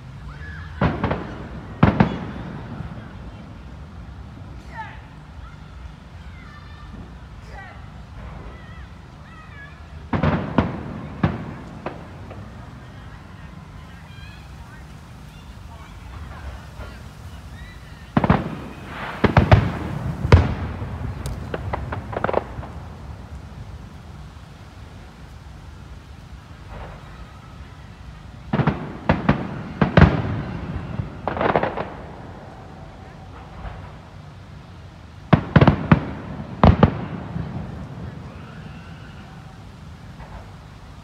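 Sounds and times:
distant fireworks bangs: 0.3 - 4.6, 8.0 - 41.0
small firework pops: 0.7 - 2.6, 10.1 - 13.1, 18.1 - 24.1, 28.5 - 32.1.

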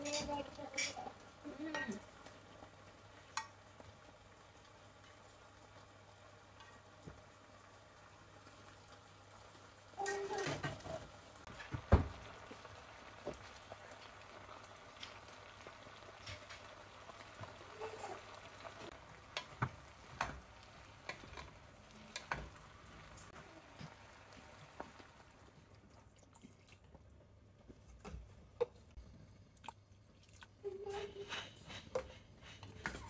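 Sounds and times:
kitchen clicks and taps: 19.3 - 22.6, 31.0 - 33.0.

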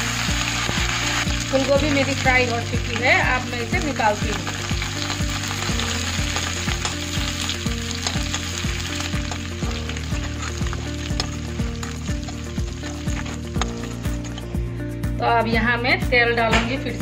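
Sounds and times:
food sizzling in hot oil: 0.0 - 14.6
background music with beat: 4.8 - 15.3
metal spatula scraping wok: 10.0 - 14.6.

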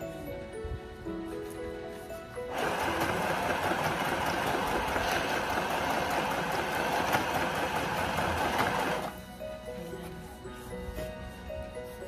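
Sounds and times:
sewing machine running: 2.5 - 9.2.

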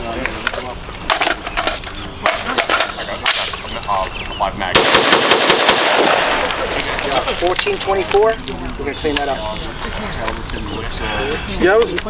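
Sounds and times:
rifle gunshots: 4.7 - 6.8.

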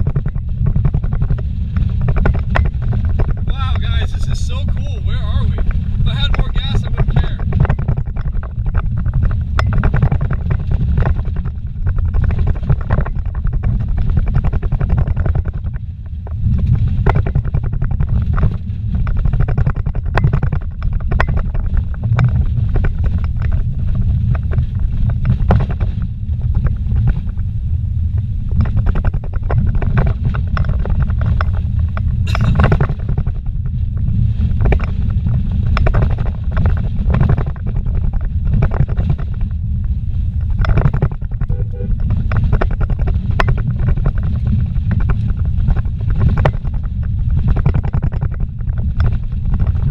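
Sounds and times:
tyres and engine rumbling: 0.0 - 10.4, 19.4 - 34.0, 35.7 - 48.9
vehicle knocks and rattles: 0.0 - 49.9.

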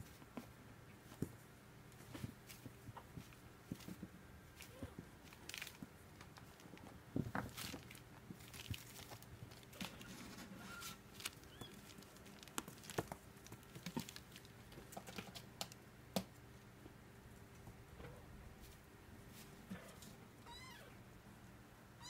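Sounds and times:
kittens' paws scrabbling on carpet: 0.0 - 15.8.

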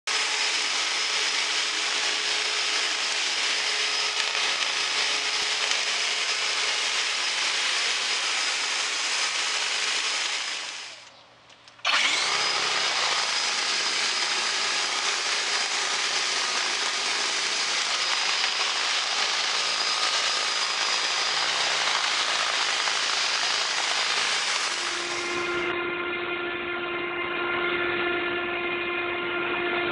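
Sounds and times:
leaf blower running: 0.1 - 11.1, 11.8 - 25.7.

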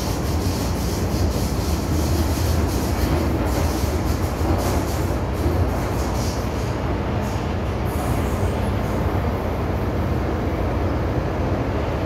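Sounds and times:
hiss: 0.0 - 8.6
train wheels rumbling on rail: 0.0 - 12.0.

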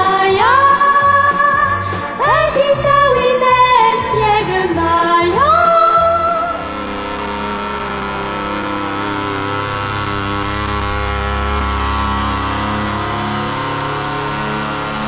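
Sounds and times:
song with singing voice: 0.0 - 6.7
paramotor engine drone: 0.0 - 15.0.

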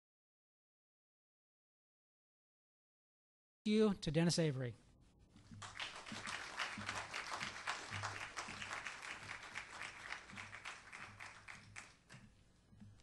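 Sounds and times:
audience applauding: 5.6 - 12.2.

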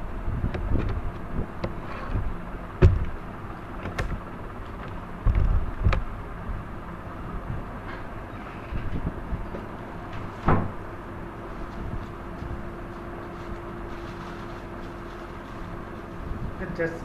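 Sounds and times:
low background rumble: 0.0 - 17.0
heavy thumps: 1.6 - 3.2
knocks and clicks: 3.8 - 6.1.

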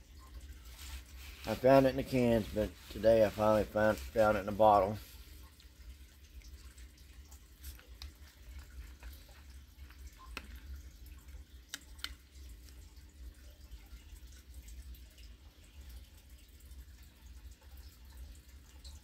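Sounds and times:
soft clicks and ticks: 7.3 - 12.8.

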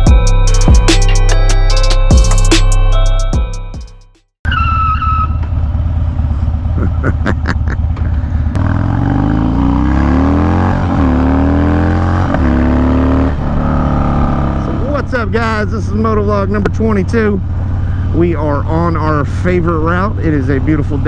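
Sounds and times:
motorcycle engine accelerating: 4.5 - 21.0.

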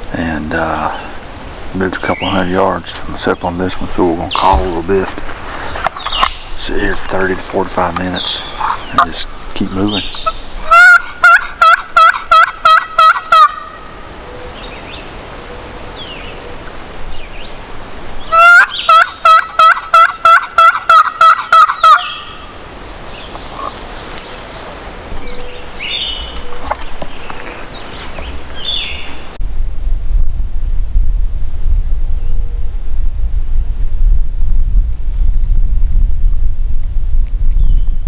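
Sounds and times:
songbird chirps: 0.2 - 11.4, 13.6 - 19.3, 21.5 - 29.4
turkey call yelps: 10.2 - 13.9, 18.3 - 22.5.

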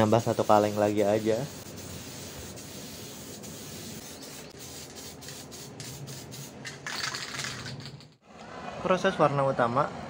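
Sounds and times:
aerosol spray can hissing: 0.2 - 6.6.

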